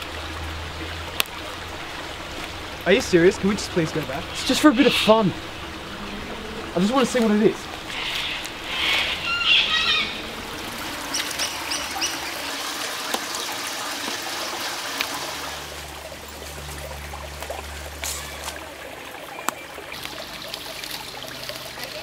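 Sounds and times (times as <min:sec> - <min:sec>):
creek water trickling: 0:00.0 - 0:22.0
low hum: 0:05.2 - 0:12.6, 0:15.2 - 0:18.9.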